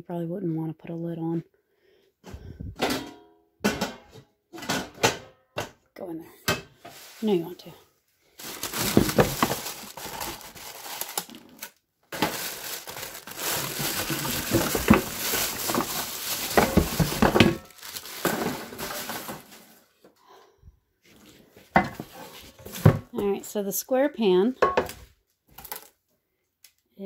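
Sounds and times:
plastic wrapping crinkling: 8.3 - 20.0.

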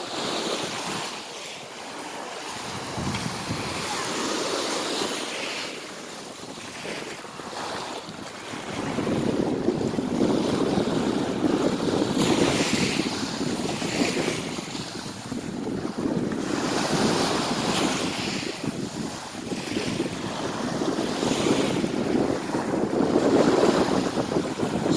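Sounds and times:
waves washing on pebbles: 0.0 - 24.9
wind buffeting microphone: 2.5 - 4.3, 7.7 - 24.9.

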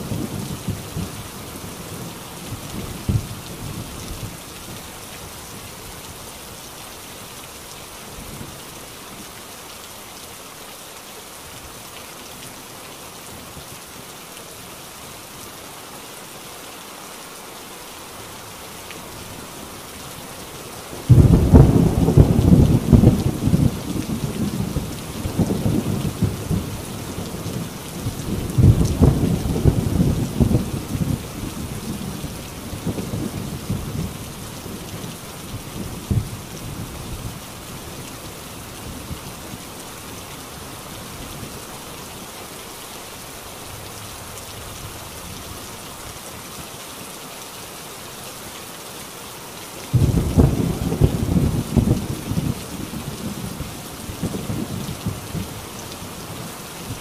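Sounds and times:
heavy rain on a tin roof: 0.0 - 57.0
loud thunderclap: 21.1 - 23.7, 49.9 - 52.6
thunder rumbling: 21.1 - 32.2, 49.9 - 55.6.

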